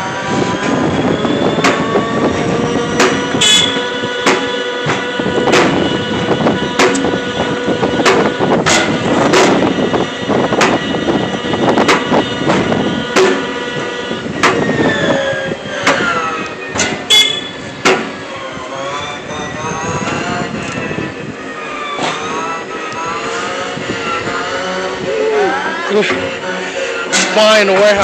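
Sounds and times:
electric pallet jack motor whine: 0.0s - 28.0s
knocks and rattles: 2.8s - 9.8s
wavering gliding tones: 17.4s - 28.0s.

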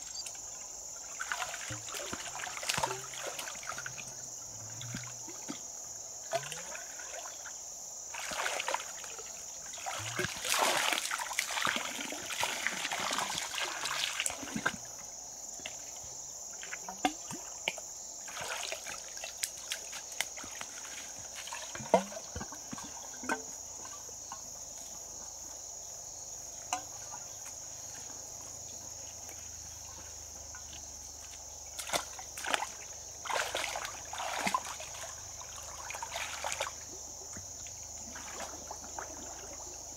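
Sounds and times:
shallow water sloshing and splashing: 0.6s - 5.7s, 6.3s - 15.0s, 16.6s - 24.4s, 29.1s - 39.9s.

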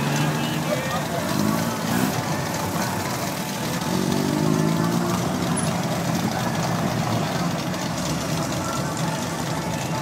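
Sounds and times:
vehicle engines driving off: 0.0s - 10.0s.

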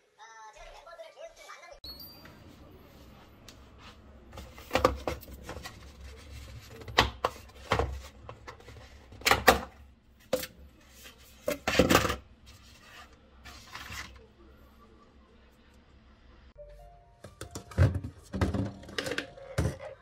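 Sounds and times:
plastic containers clattering on shelf: 4.4s - 10.5s, 11.4s - 12.2s, 17.3s - 20.0s.

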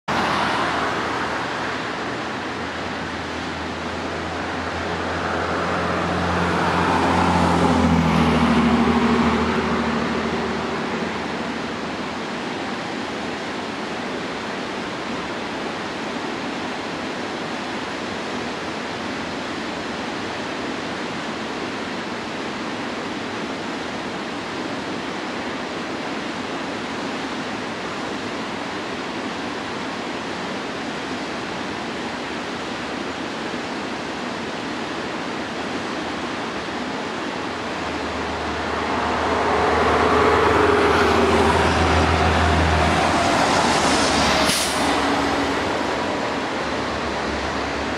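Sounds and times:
large vehicle engine humming: 0.1s - 13.0s, 36.0s - 47.9s
waterfall rushing: 0.1s - 47.9s.

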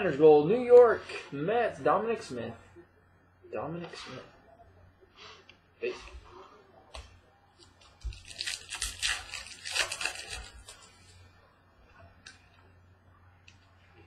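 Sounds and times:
wrapper tearing and crinkling: 8.0s - 10.9s.

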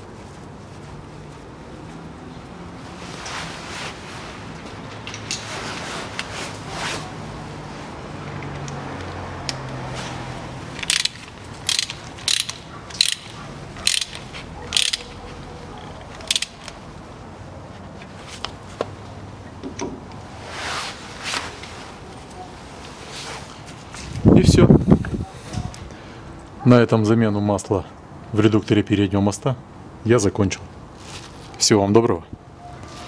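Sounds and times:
socket ratchet clicking: 10.8s - 15.2s, 16.0s - 16.8s.

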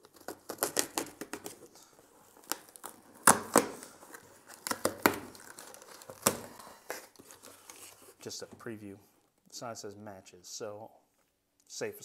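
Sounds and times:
cardboard box tearing open: 0.0s - 8.0s.

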